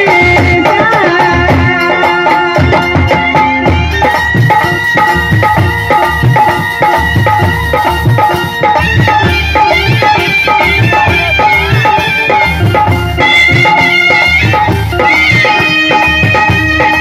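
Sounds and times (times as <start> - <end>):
folk instrumental music: 0.0 - 17.0
steady drum beat: 0.0 - 17.0.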